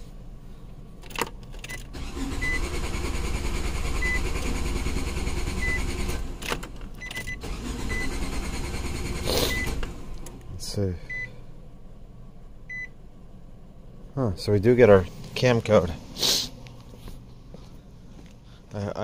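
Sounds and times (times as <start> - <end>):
starter cranking engine: 1.8 - 10.4.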